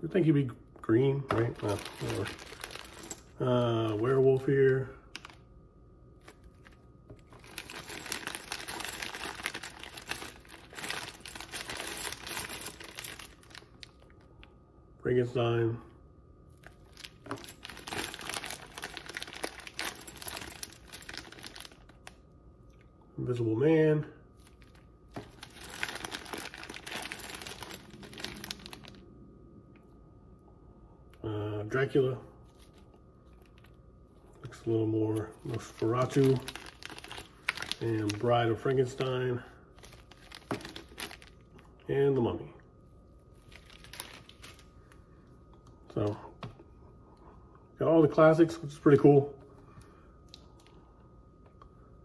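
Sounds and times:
plastic bag crinkling: 35.6s - 38.2s.

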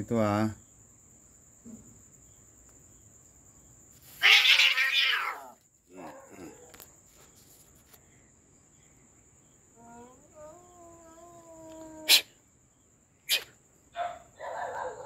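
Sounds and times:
cat screeching: 4.1s - 5.6s, 10.3s - 12.4s
cat yowling: 4.2s - 6.6s, 9.8s - 12.4s.

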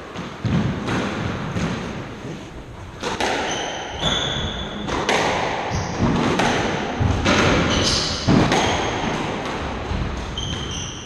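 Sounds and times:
squash ball hits: 0.1s - 2.4s, 3.0s - 11.0s
shoes squeaking on wooden floor: 3.4s - 5.0s, 10.3s - 11.0s.

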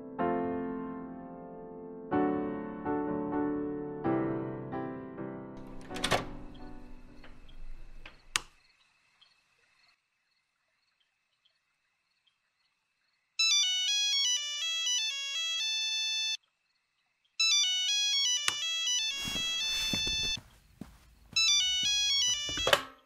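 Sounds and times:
phone ringing electronic ringtone: 13.4s - 16.4s, 17.4s - 20.4s, 21.4s - 22.9s.

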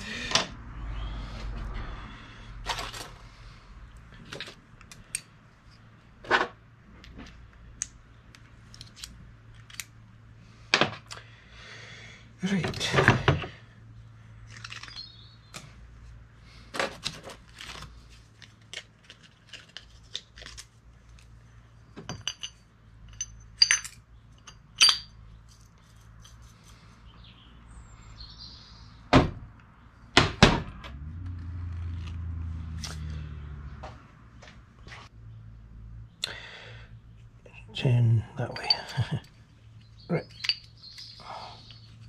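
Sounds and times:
metal parts clinking: 22.0s - 26.8s, 38.4s - 39.4s, 40.2s - 41.8s.

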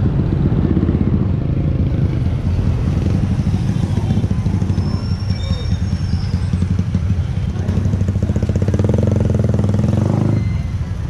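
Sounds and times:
motorcycle engine running: 0.0s - 4.9s.

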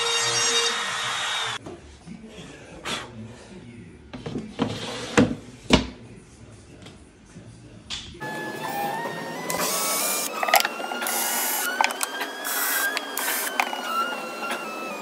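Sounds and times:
power tool whining: 8.2s - 15.0s.

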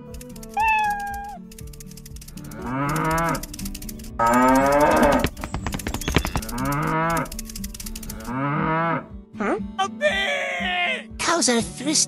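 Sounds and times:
clicks: 0.0s - 8.3s
cows mooing: 2.5s - 3.5s, 4.2s - 7.4s.

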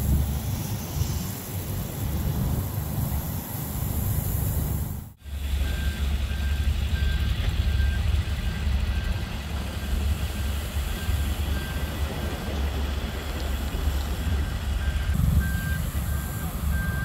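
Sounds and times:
vehicle engines rumbling: 0.0s - 17.0s
reverse backup alarm beeping: 5.2s - 12.5s, 14.2s - 17.0s.

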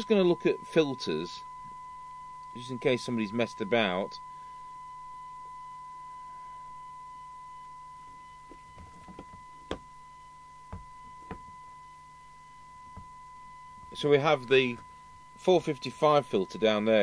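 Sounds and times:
high pure test tone: 0.0s - 17.0s
radio handling clicks and knocks: 8.5s - 9.8s, 10.7s - 11.6s.

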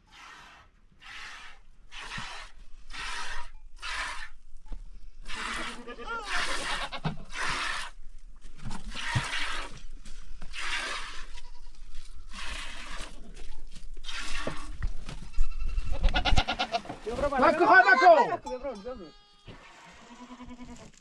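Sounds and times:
goat bleating: 5.3s - 7.6s, 11.2s - 12.4s, 15.2s - 17.0s, 19.0s - 21.0s.

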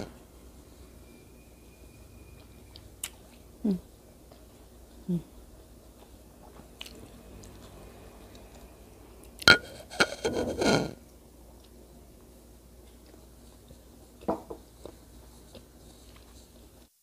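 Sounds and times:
quiet chewing: 5.9s - 9.5s, 11.0s - 11.8s, 12.8s - 14.0s, 14.8s - 16.9s.

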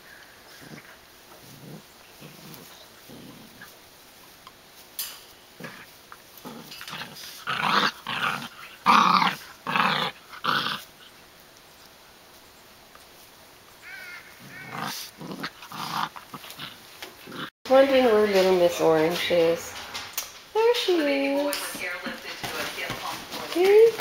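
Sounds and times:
puppies growling: 0.0s - 4.2s, 5.5s - 11.2s, 13.8s - 17.6s.

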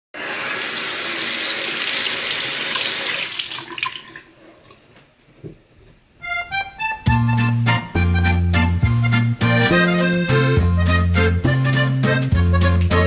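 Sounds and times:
faucet water splashing into basin: 0.2s - 4.8s
music: 6.2s - 13.0s.

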